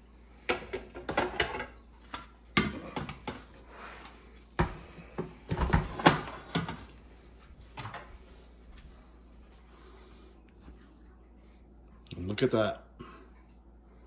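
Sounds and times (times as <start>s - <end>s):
air fryer parts clattering: 0.5s - 3.5s.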